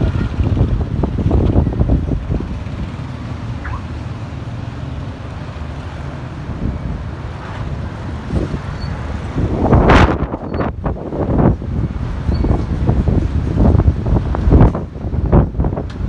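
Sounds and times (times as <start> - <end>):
wind buffeting microphone: 0.0 - 4.0, 7.8 - 16.0
street traffic: 0.0 - 16.0.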